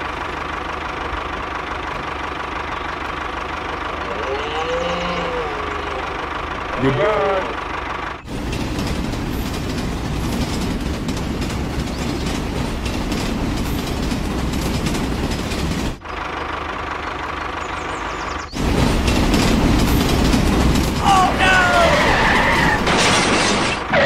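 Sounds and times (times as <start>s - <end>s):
toy train clattering on track: 18.6s - 21.9s.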